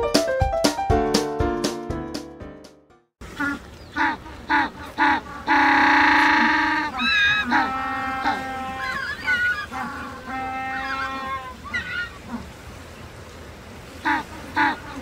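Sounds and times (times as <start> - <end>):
piano music: 0.0 - 3.1
penguins braying: 3.4 - 12.5.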